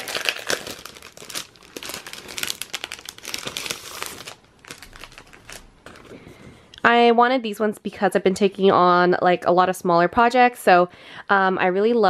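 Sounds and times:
plastic packaging crinkling: 0.0s - 6.4s.

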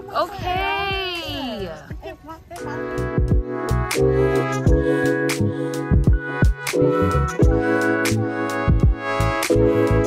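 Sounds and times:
electronic music with beat: 0.0s - 10.0s.

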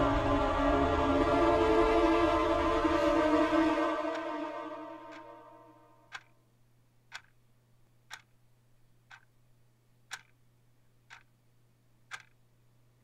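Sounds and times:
low steady hum: 0.0s - 13.0s
clock ticking faintly: 3.0s - 13.0s.

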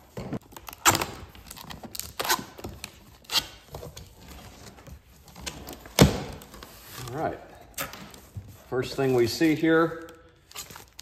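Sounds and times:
tape tearing free: 0.5s - 3.7s.

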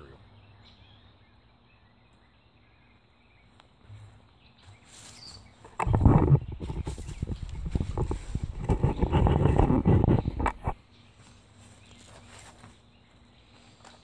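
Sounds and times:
soft rustles: 4.0s - 12.8s.

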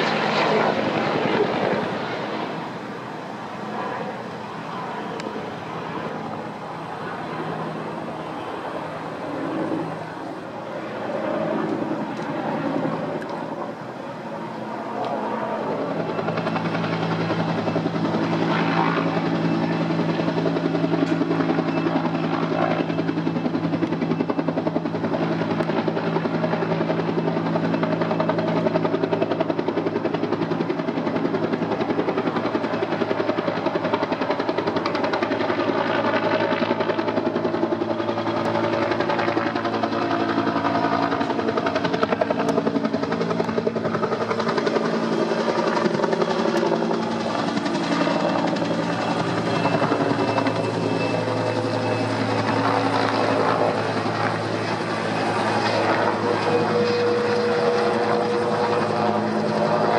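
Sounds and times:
helicopter flying overhead: 0.0s - 59.9s.

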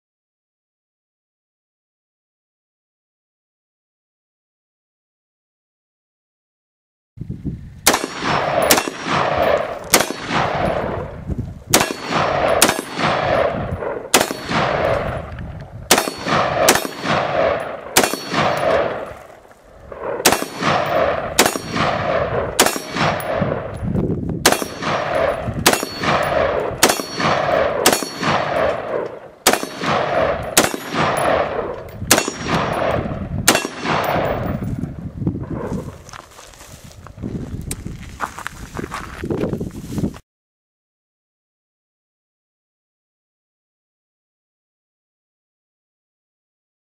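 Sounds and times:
rifle shots echoing: 7.8s - 23.8s, 24.4s - 35.7s.

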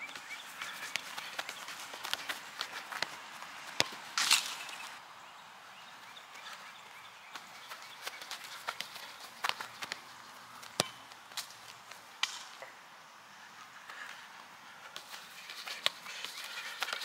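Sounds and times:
footsteps on grass: 0.0s - 5.0s
ball being kicked: 3.7s - 4.6s, 10.6s - 11.1s.

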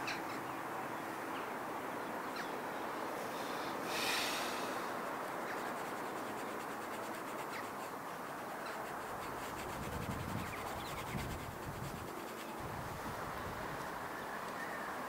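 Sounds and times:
pastel stick scratching paper: 5.3s - 12.6s.

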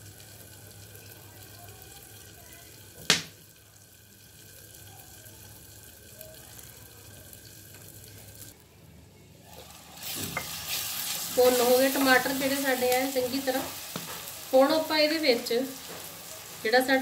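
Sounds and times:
vegetables sizzling in pan: 0.0s - 8.6s, 9.4s - 17.0s
sharp pop: 3.0s - 3.4s.

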